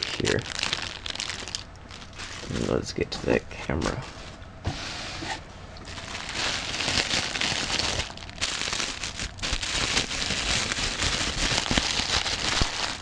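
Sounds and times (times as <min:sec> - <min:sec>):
bubble wrap crinkling: 0:00.0 - 0:03.1, 0:05.8 - 0:13.0.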